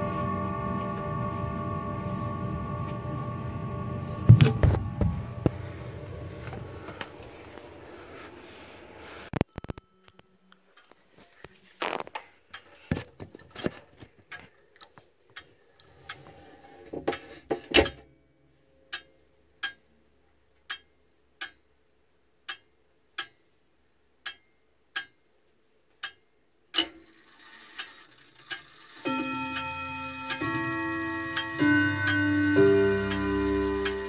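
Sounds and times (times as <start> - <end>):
clock mechanism whirring: 0.0 - 9.7, 26.0 - 34.0
clicks and rustle: 10.8 - 16.4
pendulum clock ticking: 18.9 - 25.4, 26.0 - 34.0
clock chiming: 27.2 - 34.0.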